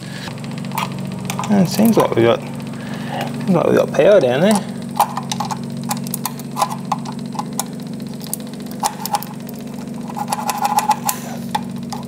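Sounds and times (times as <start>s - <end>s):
steady low hum: 0.0s - 12.0s
ignition spark snapping clicks: 0.6s - 2.5s, 4.6s - 12.0s.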